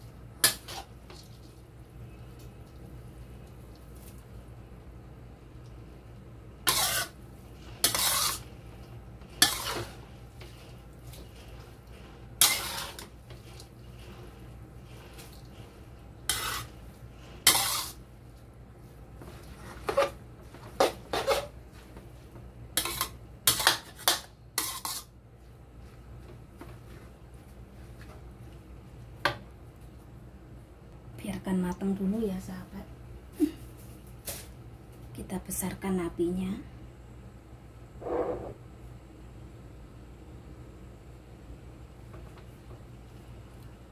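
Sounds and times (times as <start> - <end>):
spatula scraping a wok: 0.4 - 1.6, 6.6 - 18.1, 19.2 - 21.6, 22.8 - 25.2, 38.0 - 38.6.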